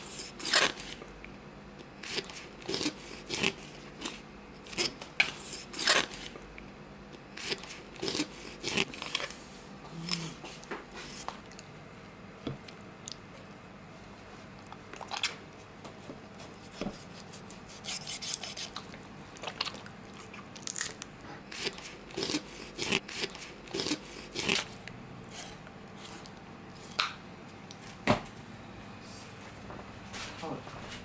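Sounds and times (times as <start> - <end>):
knife cutting fish: 16.4 - 18.8.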